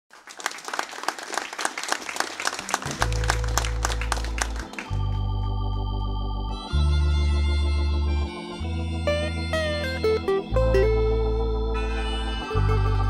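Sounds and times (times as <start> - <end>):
audience clapping: 0.1 - 6.0
long low notes: 2.8 - 13.0
organ-toned keyboard chord: 2.8 - 13.0.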